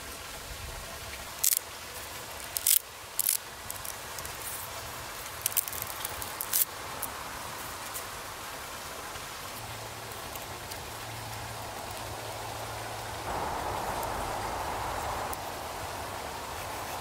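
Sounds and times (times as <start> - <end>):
low hiss: 0.0 - 17.0
stick fibres tearing: 1.4 - 1.6, 2.3 - 7.1.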